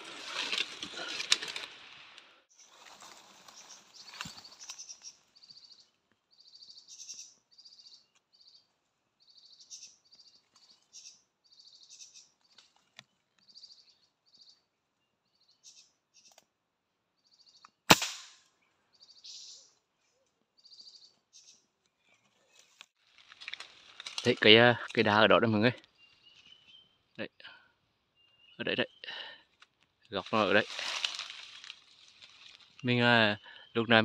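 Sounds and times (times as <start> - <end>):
small birds chirping: 2.5 - 17.9, 18.6 - 23.0, 24.2 - 34.0
sharp crack: 17.9 - 18.5.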